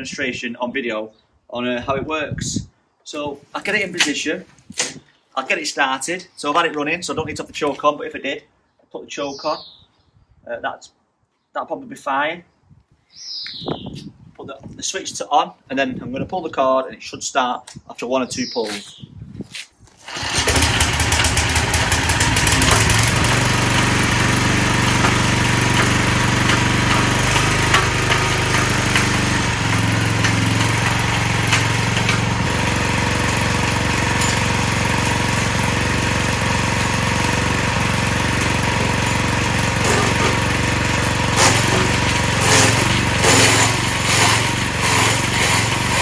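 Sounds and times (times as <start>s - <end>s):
petrol engine pull-started: 20.0s - 46.0s.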